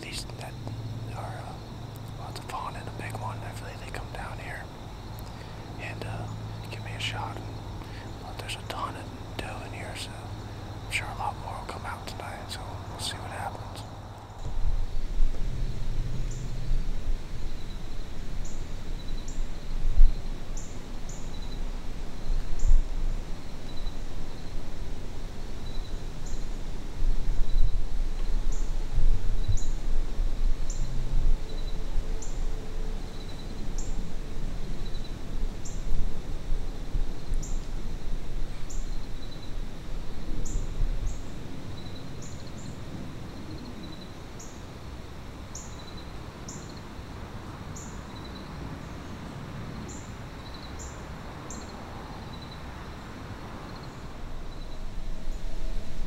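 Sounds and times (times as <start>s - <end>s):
low rumble: 11.8s - 18.2s.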